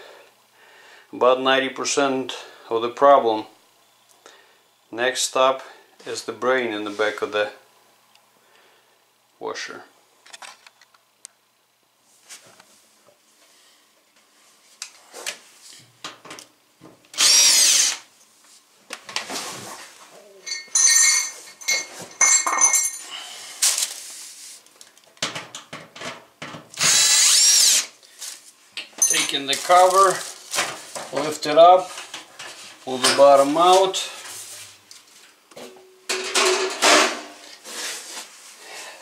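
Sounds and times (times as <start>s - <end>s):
cordless drill spinning: 17.1s - 18.0s, 26.8s - 27.9s.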